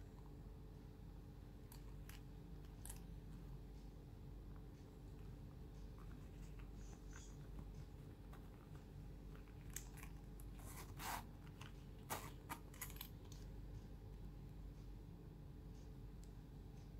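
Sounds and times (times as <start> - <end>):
zipper rasping shut: 10.6 - 11.3.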